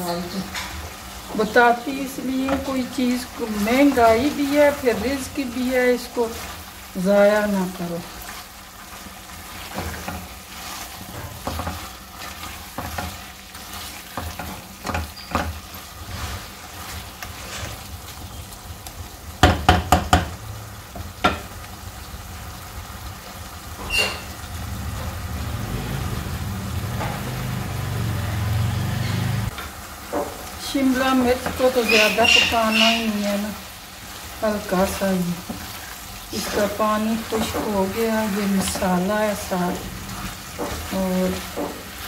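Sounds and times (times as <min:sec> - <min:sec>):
curry frying: 0:00.0 - 0:42.0
spatula scraping metal pot: 0:31.4 - 0:33.2.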